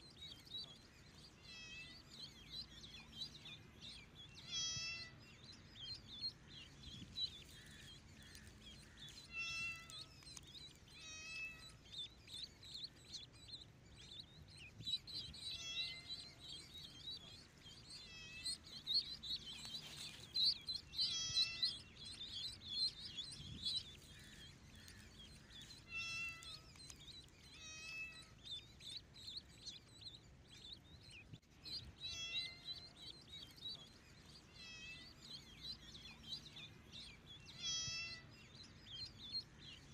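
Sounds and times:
high-pitched peeping chirps: 0.0s - 39.9s
kittens meowing: 4.4s - 5.2s, 9.2s - 10.2s, 10.9s - 11.8s, 15.4s - 16.4s, 19.5s - 22.5s, 24.0s - 26.8s, 27.5s - 28.3s, 32.1s - 32.9s, 37.5s - 38.3s.

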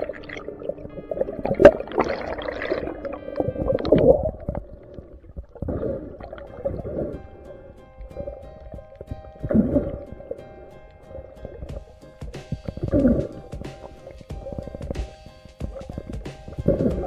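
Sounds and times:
underwater rushing and gurgling: 0.0s - 12.0s
background music with held notes: 0.0s - 17.0s.

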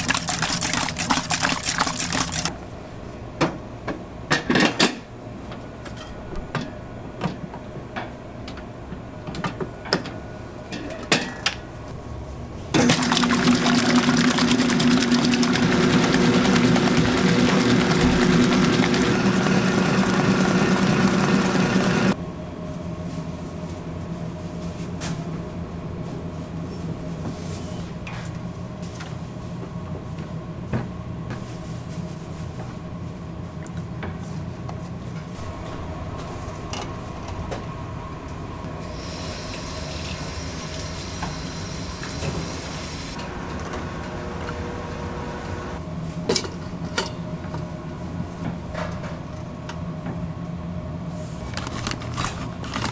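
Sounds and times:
stand mixer whirring: 12.8s - 22.2s.

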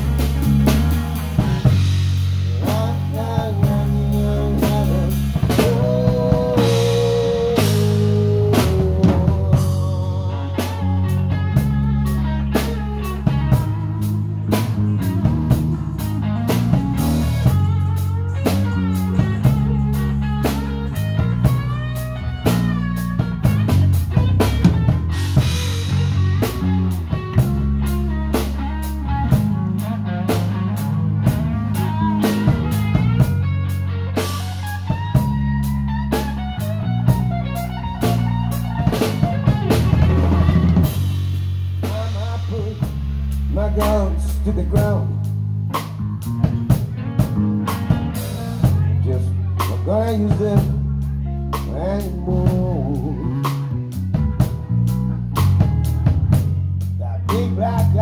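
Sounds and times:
bass line: 0.0s - 58.0s
electric guitar: 0.0s - 58.0s
rock band playing: 0.0s - 58.0s.

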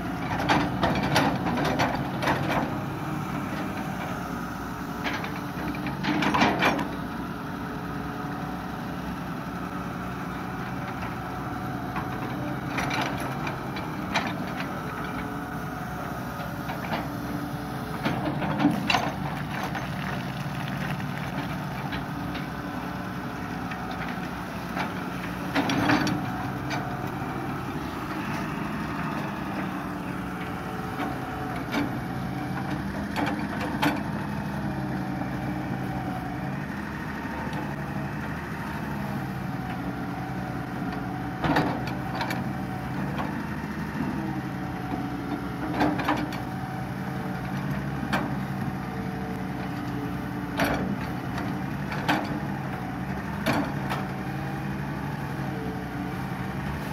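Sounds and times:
excavator diesel engine droning: 0.0s - 56.9s.

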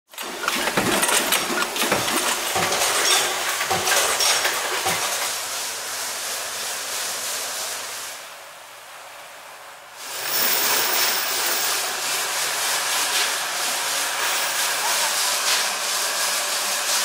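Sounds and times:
metal clatter of machinery: 0.1s - 5.5s, 10.0s - 12.2s
bubbling liquid fizzing hiss: 10.0s - 12.0s.

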